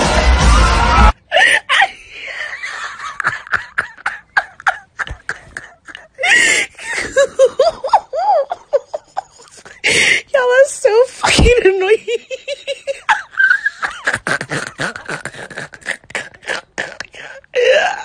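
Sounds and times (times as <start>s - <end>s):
loud burst of music: 0.0s - 1.1s
person laughing hard: 1.3s - 10.0s, 11.9s - 16.9s.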